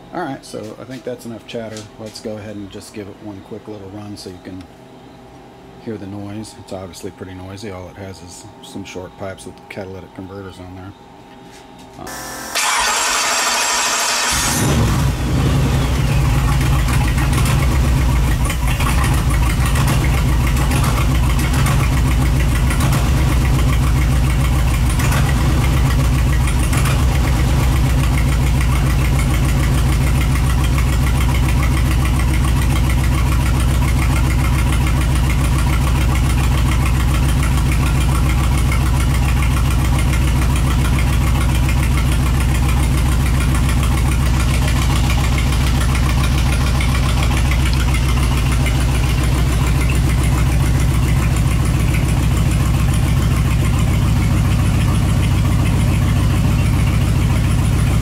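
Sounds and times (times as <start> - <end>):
engine idling: 12.1 - 58.0.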